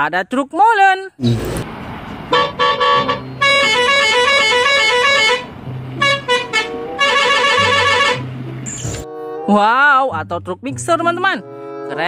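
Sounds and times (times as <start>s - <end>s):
vehicle horn honking: 2.3s - 8.4s.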